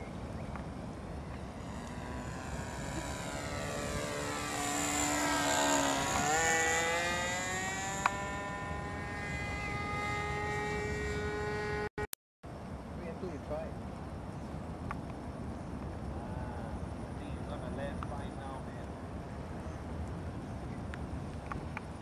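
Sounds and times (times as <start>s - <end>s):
model plane engine buzzing: 0.0s - 12.1s.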